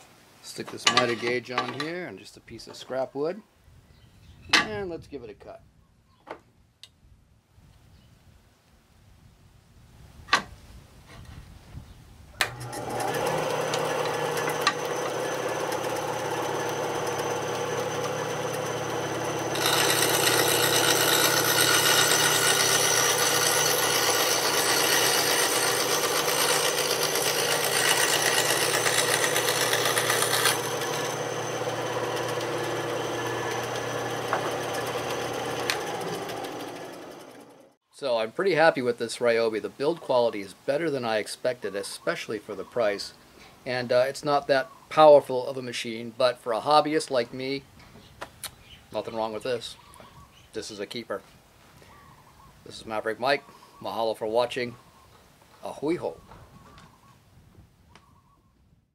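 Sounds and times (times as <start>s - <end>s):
saw blade cutting wood: 12.4s - 37.7s
bandsaw motor running: 12.4s - 37.8s.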